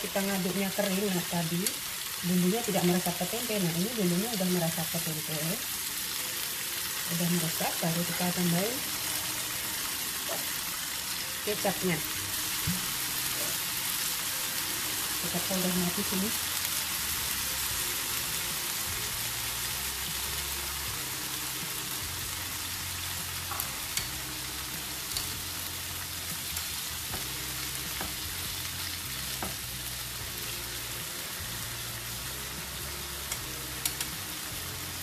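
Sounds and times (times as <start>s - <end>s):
food sizzling in a frying pan: 0.0s - 35.0s
chopsticks clicking against pan: 33.3s - 34.1s.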